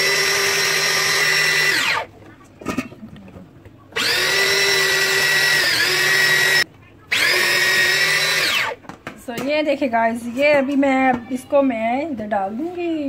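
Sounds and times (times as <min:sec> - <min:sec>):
electric grater motor whine: 0:00.0 - 0:02.1, 0:04.0 - 0:08.8.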